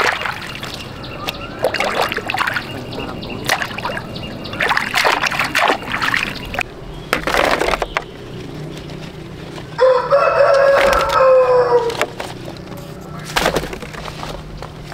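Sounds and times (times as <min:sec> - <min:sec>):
water splashing and trickling: 0:00.0 - 0:09.2.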